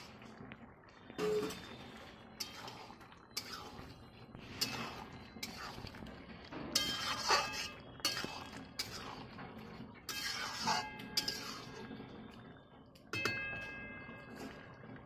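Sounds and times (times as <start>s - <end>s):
ladle scraping steel pot: 1.2s - 12.4s.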